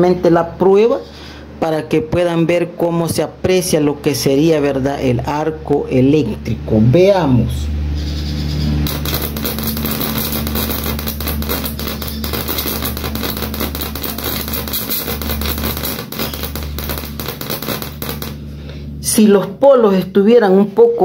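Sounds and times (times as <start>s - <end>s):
steady low hum: 0.0s - 21.0s
electric arc crackling and buzzing: 8.6s - 19.8s.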